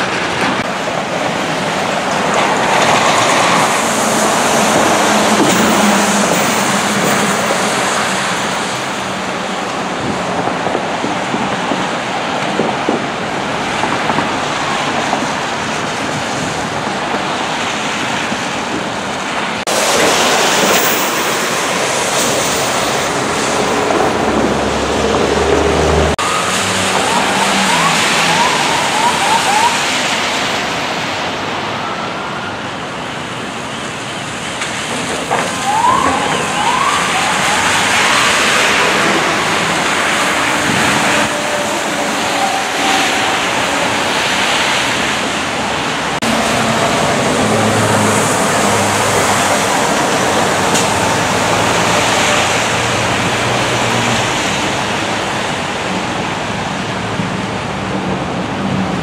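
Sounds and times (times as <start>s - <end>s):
tyres hissing on wet road: 0.0s - 59.0s
siren yelping: 26.0s - 30.3s, 35.3s - 44.1s.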